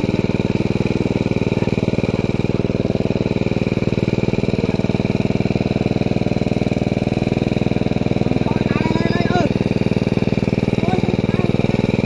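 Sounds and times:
small engine running steadily: 0.0 - 12.0.

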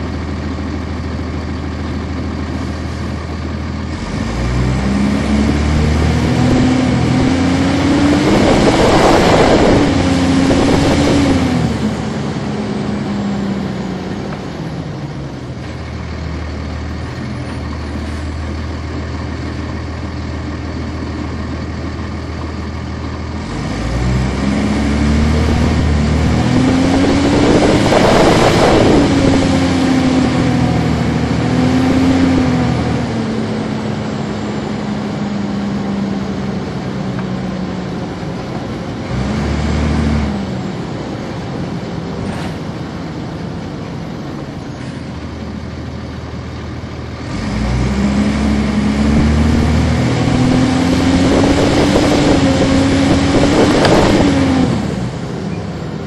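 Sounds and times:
bus diesel engine accelerating: 0.0 - 56.0
loud rush of noise: 2.5 - 16.0, 23.4 - 45.6, 47.2 - 55.9.

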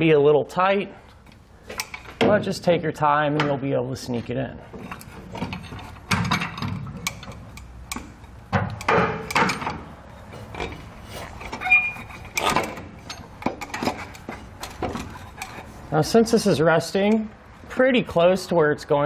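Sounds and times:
metal knocks and clunks: 1.7 - 2.6, 3.3 - 3.7, 4.7 - 15.7
short squeak: 11.6 - 12.5.

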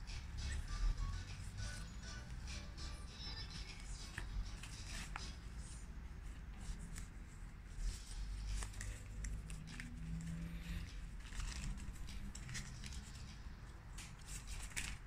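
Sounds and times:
cards rustling: 3.3 - 15.0.

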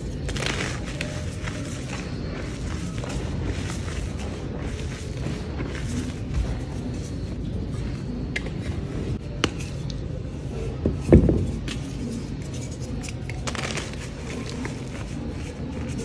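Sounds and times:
hands crumbling chalk: 0.0 - 7.2, 11.0 - 16.0.

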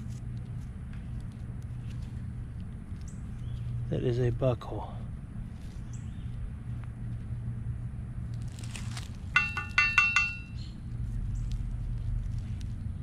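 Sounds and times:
metallic clinks: 9.4 - 10.7.

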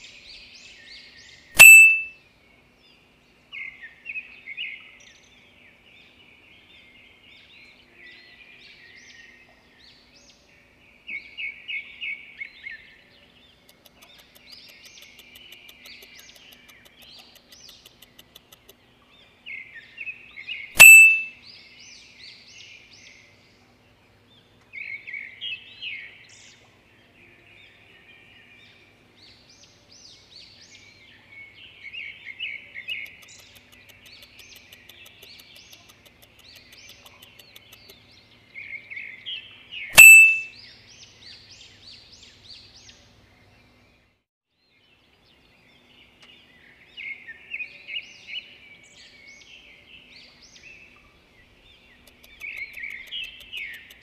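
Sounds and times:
sharp loud ding: 1.6 - 2.1, 20.8 - 21.3, 40.0 - 40.5
birds chirping and trilling: 2.9 - 23.5, 24.2 - 44.1, 44.7 - 54.0.

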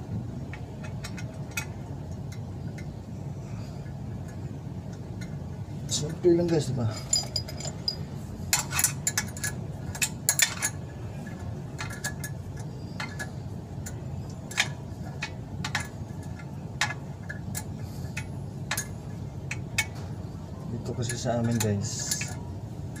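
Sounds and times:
low hum: 0.0 - 23.0
wrench clinking on bolts: 4.2 - 20.2, 20.8 - 23.0.

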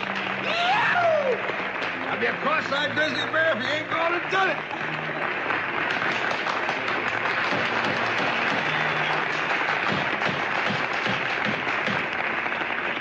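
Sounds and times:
audience applauding: 0.0 - 13.0
voices among clapping: 0.0 - 13.0
wooden gavel rapping: 9.8 - 12.0.

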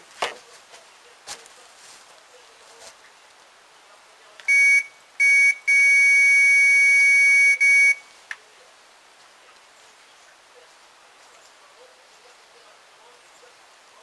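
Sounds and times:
bite alarm high-pitched tone: 4.5 - 8.0.

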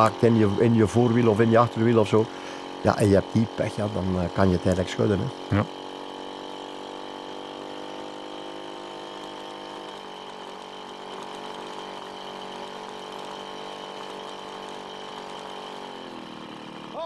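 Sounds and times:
vehicle engine droning: 0.0 - 17.0.

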